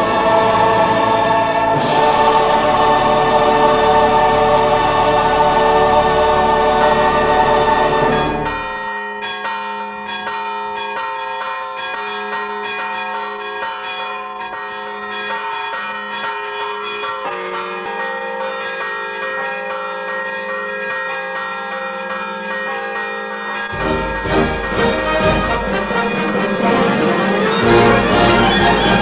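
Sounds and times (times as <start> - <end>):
choir singing: 0.0 - 8.8, 23.7 - 29.0
church bells ringing: 0.0 - 29.0.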